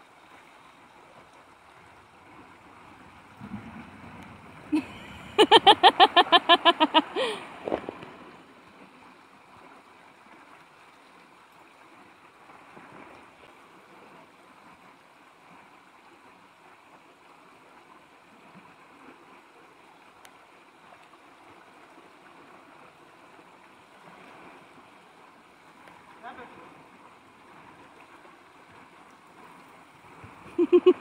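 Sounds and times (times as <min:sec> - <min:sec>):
river rushing over rocks: 0:00.0 - 0:20.6.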